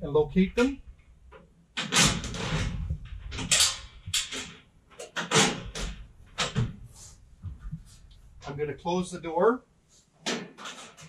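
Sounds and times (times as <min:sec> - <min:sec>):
metal door knocks and rattles: 0:01.8 - 0:06.9.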